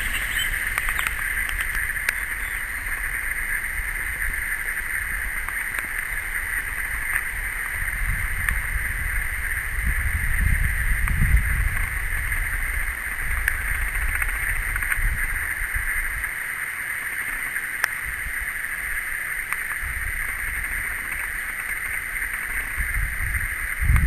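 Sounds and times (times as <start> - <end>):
high-pitched hiss: 0.0 - 3.5
wind rumbling on microphone: 0.0 - 16.4, 18.0 - 24.0.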